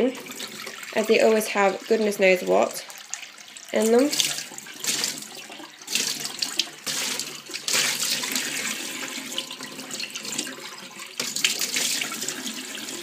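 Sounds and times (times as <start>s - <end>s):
tap water splashing in a bowl: 2.6s - 12.6s.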